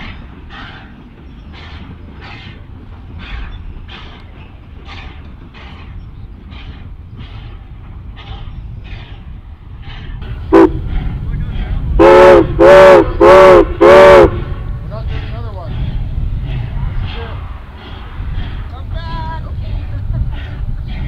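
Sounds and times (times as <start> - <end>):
low rumble: 0.0 - 21.0
steam locomotive chuffing: 0.0 - 21.0
steam whistle blast: 12.0 - 14.4.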